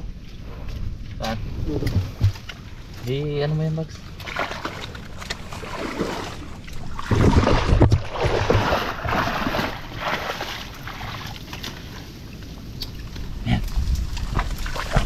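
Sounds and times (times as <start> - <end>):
hand splashing muddy water: 4.2 - 12.0.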